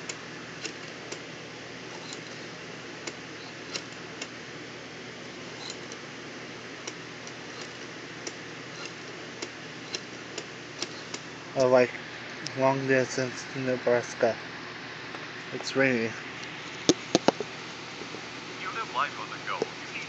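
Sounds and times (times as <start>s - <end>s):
rotary telephone dial clicking: 0.0s - 1.2s, 1.9s - 4.4s, 5.4s - 6.0s, 6.8s - 11.3s
steady hiss: 0.0s - 20.0s.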